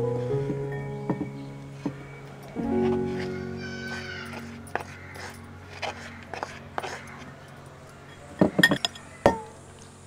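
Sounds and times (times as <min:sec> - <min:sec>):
metal spoon clinking glass bowl: 0:06.8 - 0:09.4.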